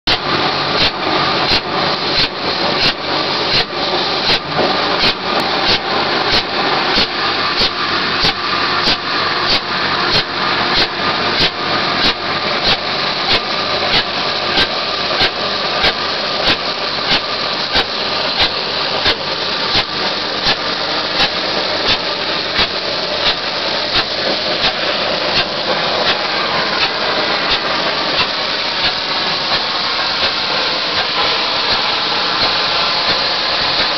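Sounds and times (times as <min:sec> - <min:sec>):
steady engine noise: 0:00.0 - 0:33.9
machinery knocking rhythmically: 0:00.1 - 0:33.9
steady rushing noise: 0:00.1 - 0:33.9.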